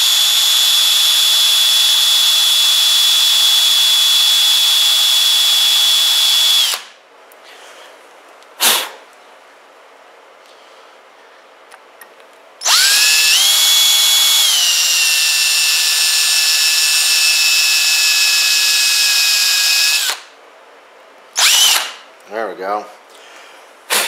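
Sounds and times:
power drill whining: 0:00.0 - 0:06.9, 0:12.6 - 0:20.3, 0:21.4 - 0:22.0.

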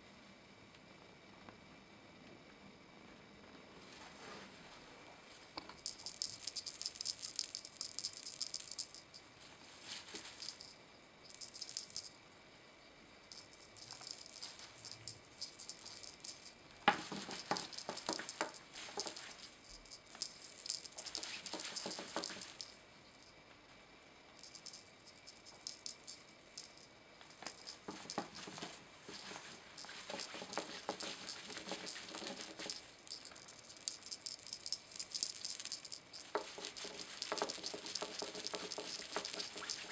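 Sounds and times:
tinsel wand toy rattling: 0:05.8 - 0:09.3, 0:10.0 - 0:12.2, 0:13.3 - 0:23.3, 0:24.4 - 0:39.9.

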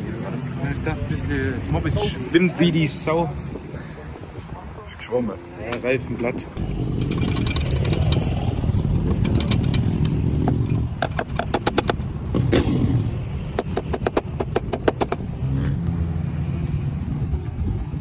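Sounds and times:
motorcycles running: 0:05.8 - 0:18.0.

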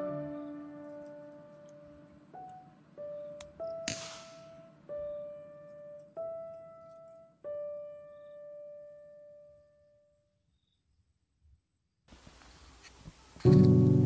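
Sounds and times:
slow piano notes: 0:00.0 - 0:10.2, 0:13.4 - 0:14.0.

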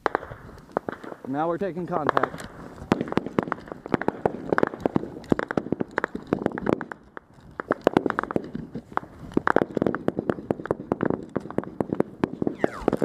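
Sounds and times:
rifle gunfire bursts: 0:00.0 - 0:07.0.

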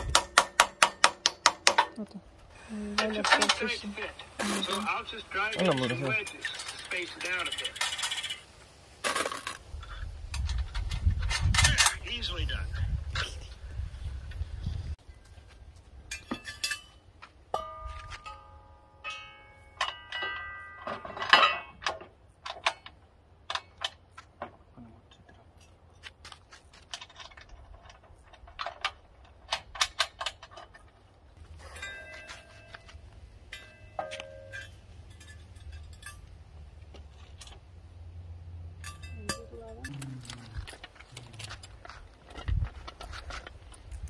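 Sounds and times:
metal parts clinking and tapping: 0:03.0 - 0:08.5, 0:16.1 - 0:37.7, 0:38.8 - 0:44.0
short metallic rings: 0:16.1 - 0:21.8, 0:31.5 - 0:36.5, 0:38.6 - 0:40.0.

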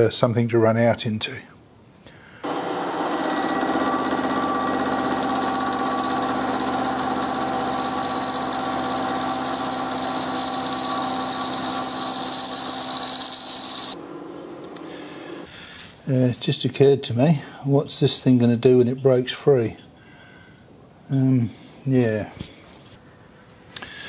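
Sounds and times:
milling machine cutting whine: 0:02.4 - 0:15.5.

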